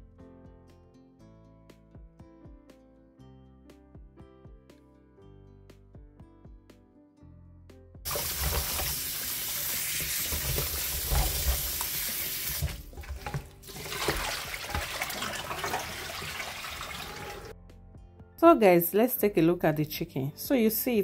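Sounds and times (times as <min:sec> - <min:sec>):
hands rubbing vegetables in water: 0:08.1 - 0:17.5
tap running into metal sink: 0:08.1 - 0:17.5.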